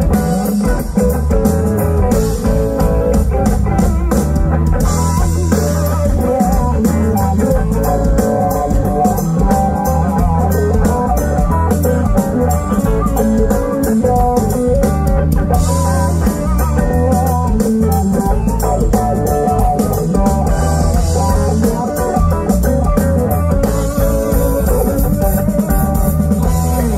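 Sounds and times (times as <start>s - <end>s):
bass guitar: 0.0s - 26.9s
drum kit with cymbal hits: 0.0s - 26.9s
electric guitar: 0.0s - 26.9s.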